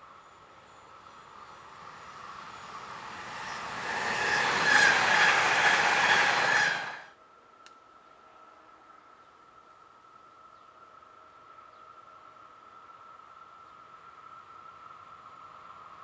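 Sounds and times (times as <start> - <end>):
electric train passing: 0.0 - 16.0.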